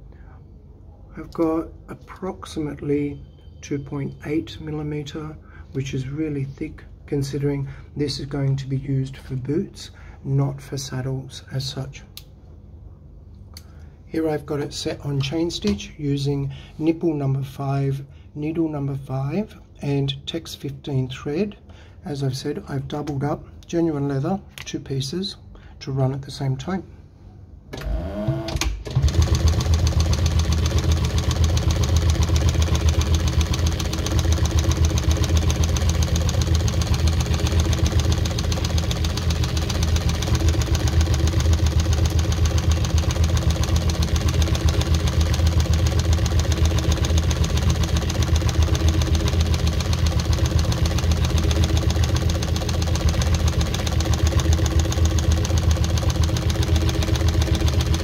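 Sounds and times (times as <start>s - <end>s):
sewing machine stitching leather: 27.8s - 58.0s.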